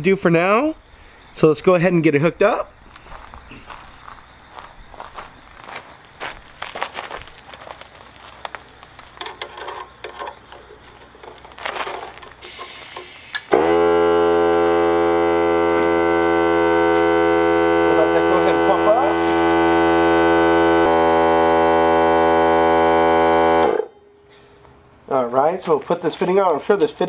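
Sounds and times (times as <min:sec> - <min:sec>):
air hose clattering: 0:09.0 - 0:13.6
air compressor droning: 0:10.7 - 0:23.9
air hissing: 0:12.3 - 0:13.9.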